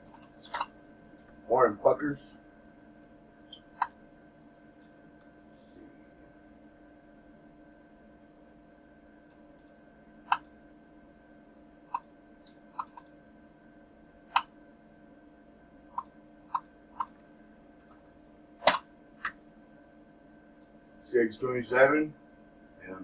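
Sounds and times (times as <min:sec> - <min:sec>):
faint steady hum: 0:00.0 - 0:23.0
computer mouse clicking: 0:09.3 - 0:10.5, 0:11.9 - 0:13.2, 0:14.3 - 0:14.5, 0:15.9 - 0:17.2.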